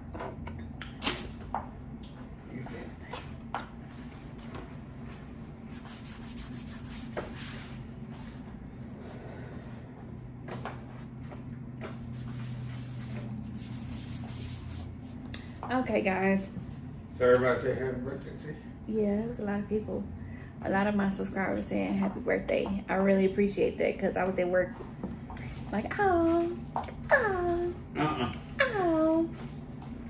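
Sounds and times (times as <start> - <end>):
steady low hum: 0.0 - 30.0
chewing and food handling noises: 28.0 - 30.0.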